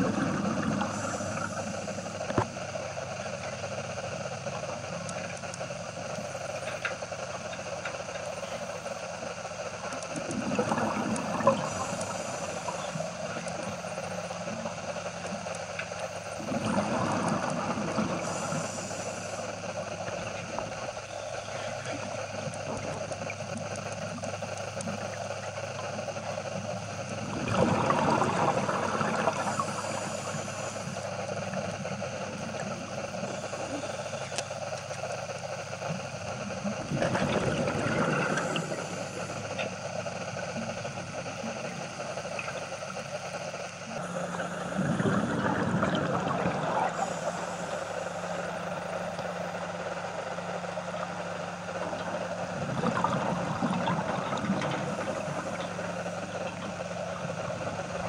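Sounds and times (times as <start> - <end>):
diver exhaling bubbles: 0.0 - 2.5, 10.1 - 13.7, 16.4 - 19.4, 27.2 - 30.8, 36.7 - 39.6, 44.0 - 48.4, 51.8 - 58.0
underwater boat engine hum: 0.0 - 58.0.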